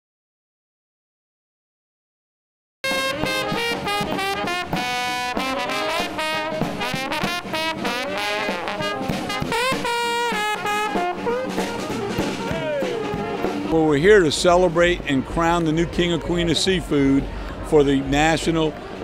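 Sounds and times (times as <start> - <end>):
snare drum: 2.8 - 16.0
marching brass band playing jazz: 2.8 - 19.0.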